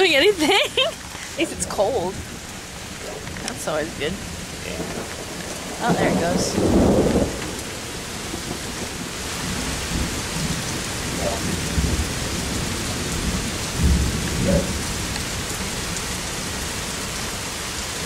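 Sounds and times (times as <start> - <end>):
heavy rain hissing: 0.0 - 18.0
low thunder rumbling: 0.0 - 18.0.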